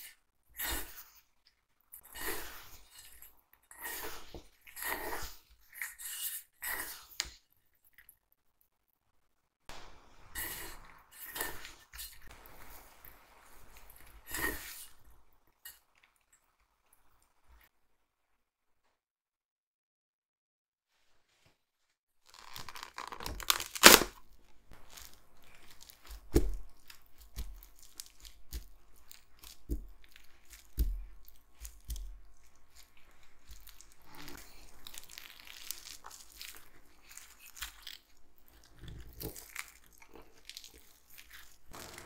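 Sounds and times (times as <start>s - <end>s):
plastic wrap crinkling: 22.2s - 38.2s.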